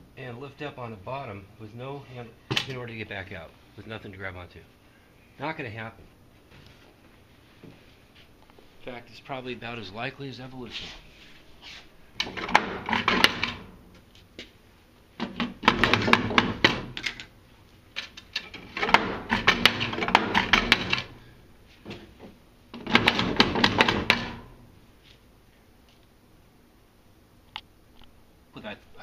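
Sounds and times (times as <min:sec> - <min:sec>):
wooden door rattling in frame: 0:12.2 - 0:13.7, 0:15.2 - 0:17.0, 0:18.5 - 0:21.1, 0:22.8 - 0:24.5.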